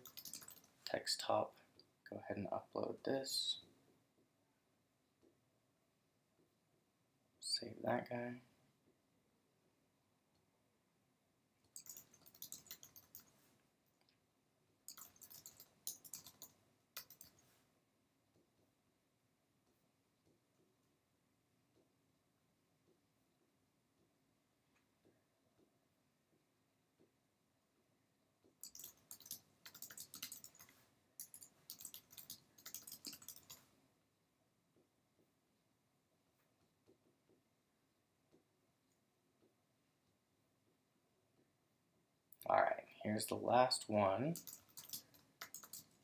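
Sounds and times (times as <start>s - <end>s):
keyboard typing clicks: 0.0s - 0.7s, 11.7s - 13.3s, 14.9s - 17.4s, 28.6s - 33.6s, 44.4s - 46.0s.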